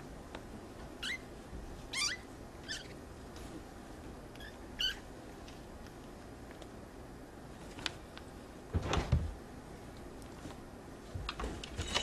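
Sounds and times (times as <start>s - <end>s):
kittens squeaking mews: 1.0s - 1.3s, 1.9s - 3.0s, 4.4s - 5.1s.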